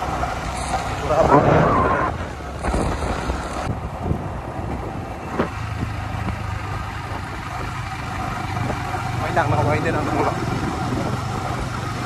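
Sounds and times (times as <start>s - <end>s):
motorcycle engine running: 5.6s - 12.0s.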